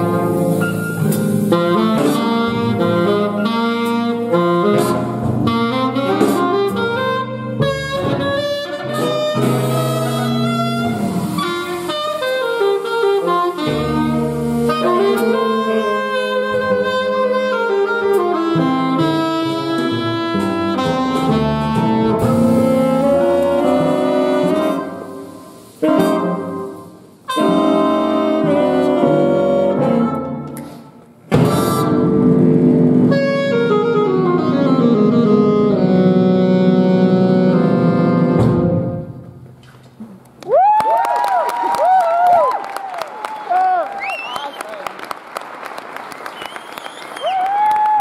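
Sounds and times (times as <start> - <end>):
jazz big band playing: 0.0 - 39.7
solo saxophone: 1.4 - 30.8, 31.4 - 39.3.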